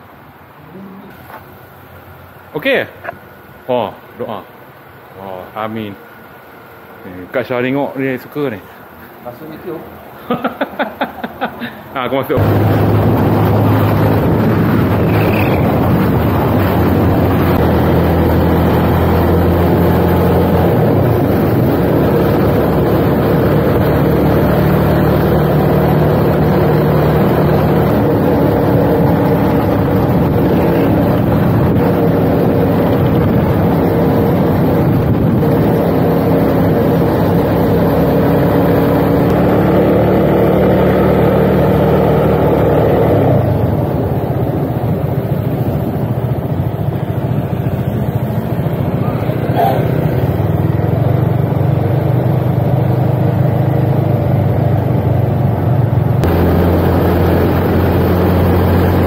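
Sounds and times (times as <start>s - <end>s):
wind noise on microphone: 12.4s - 24.4s, 26.0s - 38.0s
motorcycle engine running: 12.4s - 59.0s.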